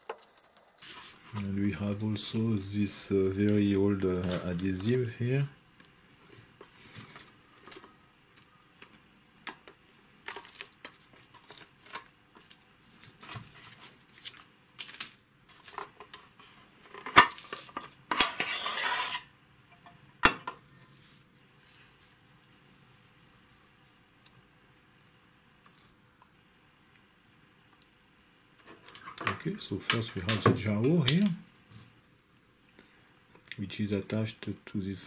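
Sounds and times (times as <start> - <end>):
tape peeling with crackles: 3.4 - 5.1, 10.2 - 15.8.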